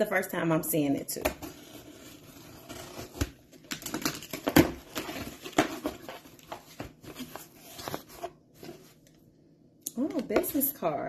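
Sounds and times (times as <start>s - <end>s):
cardboard flaps rustling: 2.6s - 9.0s.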